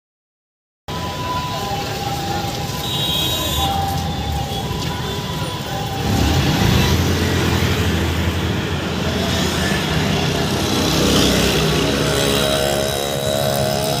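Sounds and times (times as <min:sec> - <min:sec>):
scooters and motorcycles passing: 0:03.4 - 0:14.0.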